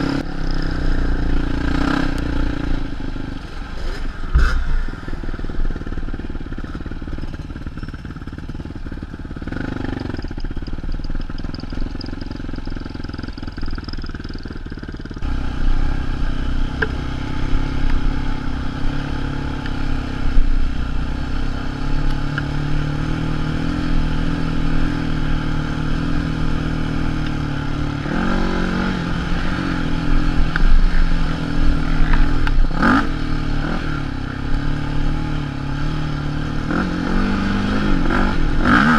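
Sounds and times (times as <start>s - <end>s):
quad engine running: 0.0s - 38.9s.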